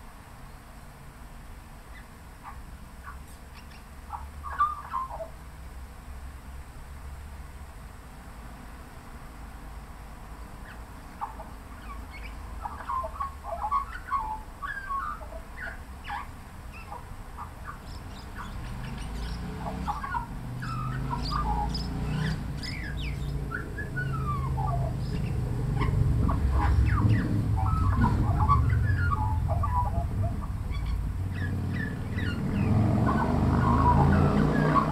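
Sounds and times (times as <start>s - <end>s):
low traffic rumble: 0.0s - 34.9s
magpie singing: 1.9s - 5.4s, 10.6s - 34.9s.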